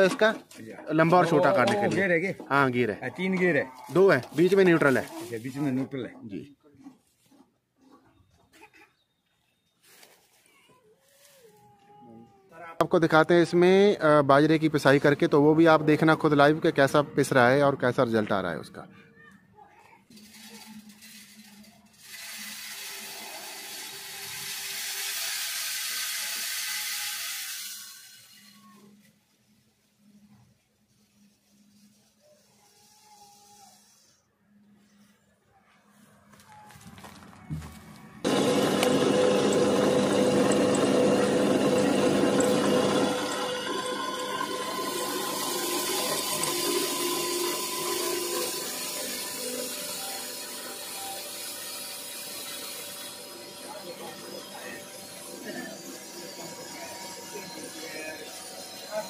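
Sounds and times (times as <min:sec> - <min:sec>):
grain grinder whirring: 0:20.2 - 0:28.8, 0:38.2 - 0:59.0
low motor hum: 0:37.6 - 0:48.4.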